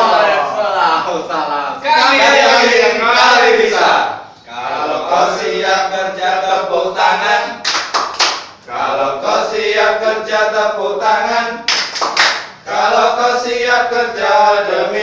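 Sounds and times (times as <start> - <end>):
hand claps: 7.6 - 8.6, 11.7 - 12.6.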